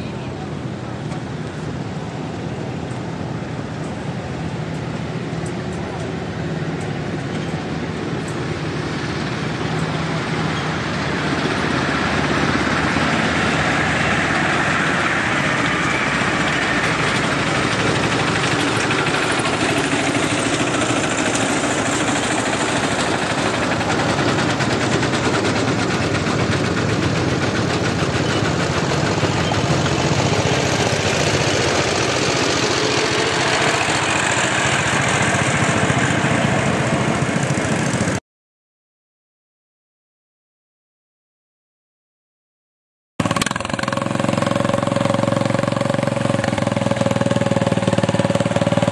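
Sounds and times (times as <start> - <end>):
small engine running: 6.8 - 38.2, 43.2 - 48.9.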